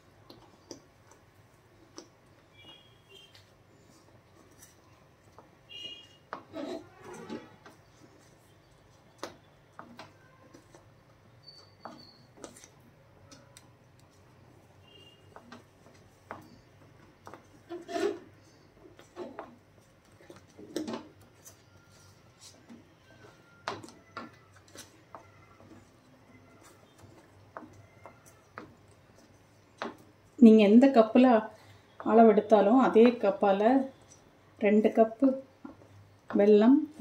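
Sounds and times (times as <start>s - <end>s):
spatula scraping metal pan: 17.7s - 18.3s.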